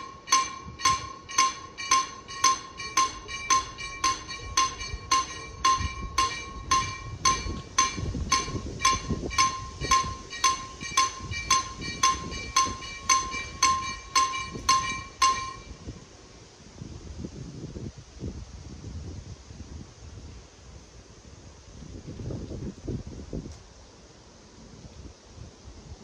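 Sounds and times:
level crossing warning bell: 0:00.0 - 0:15.9.

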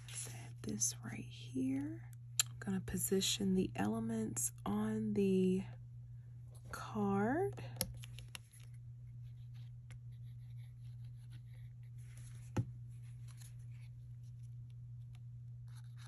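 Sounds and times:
steady low hum: 0:00.0 - 0:16.0
rustling and taps of cardstock: 0:12.1 - 0:13.5.

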